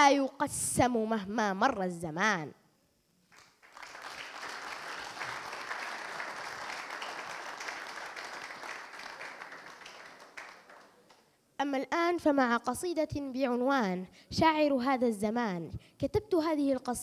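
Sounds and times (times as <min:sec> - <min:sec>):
audience applauding: 0:03.3 - 0:11.3.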